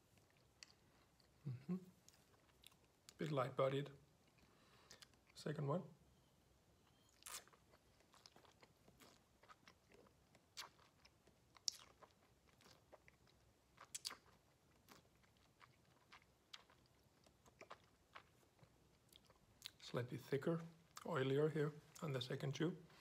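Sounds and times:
mouth chewing wet clicks: 7.1 - 19.8.

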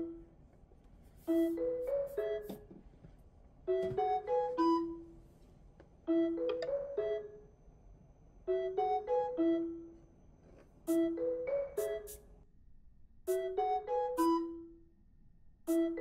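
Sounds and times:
light piano melody: 1.2 - 2.8, 3.6 - 5.2, 10.9 - 12.2.

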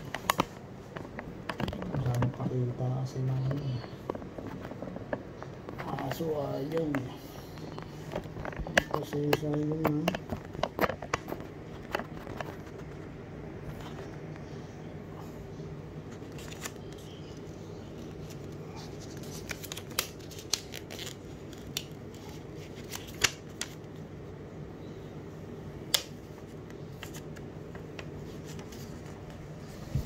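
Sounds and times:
steady low hum: 0.0 - 30.0
plastic sheet peeling and crinkling: 7.7 - 13.1, 16.1 - 24.0.

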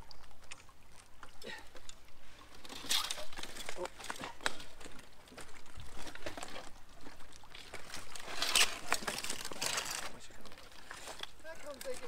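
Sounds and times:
water splashing: 0.0 - 12.0
scraping on concrete: 8.0 - 10.2.

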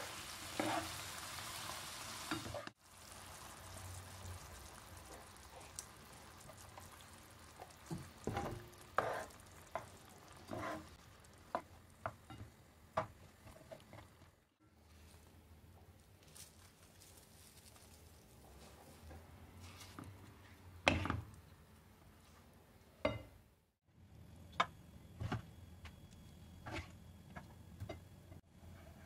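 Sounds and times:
food sizzling in a frying pan: 0.0 - 12.7.

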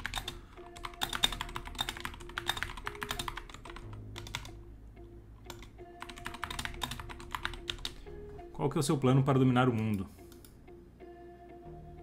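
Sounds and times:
computer keyboard typing: 0.0 - 4.6, 5.5 - 8.0.

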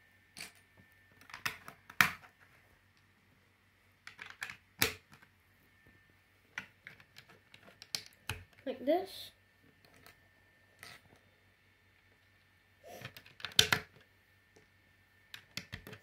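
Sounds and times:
plastic bricks clicking: 4.0 - 5.2, 13.0 - 14.0, 15.3 - 16.0.

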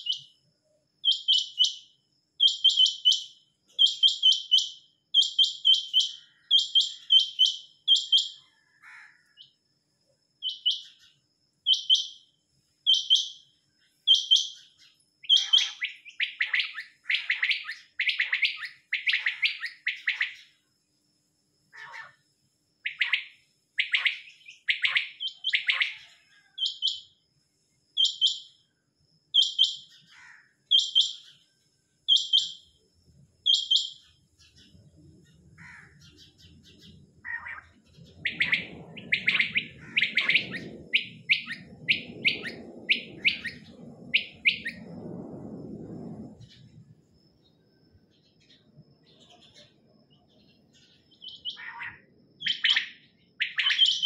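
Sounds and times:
quails calling: 15.3 - 20.4, 35.6 - 43.6, 51.3 - 54.0
lower faster quail calls: 38.2 - 44.8.

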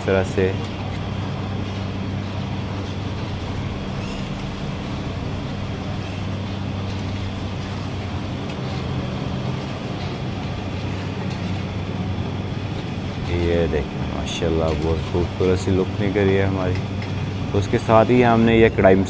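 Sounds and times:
curry sizzling: 0.0 - 19.0
gas burner roaring: 0.0 - 19.0
low hum: 0.0 - 19.0.

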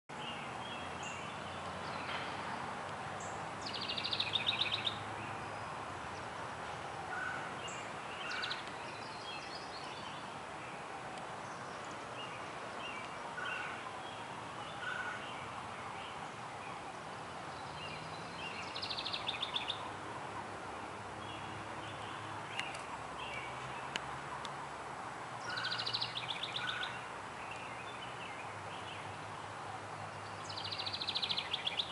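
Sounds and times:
steady background noise: 0.1 - 31.9
wren trilling song: 3.2 - 6.4, 7.0 - 10.2, 17.4 - 20.0, 25.4 - 29.2.

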